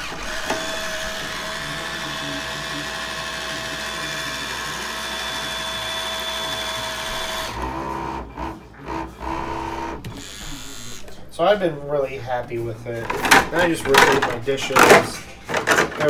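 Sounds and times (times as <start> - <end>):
small electric motor whirring: 0.0 - 11.1.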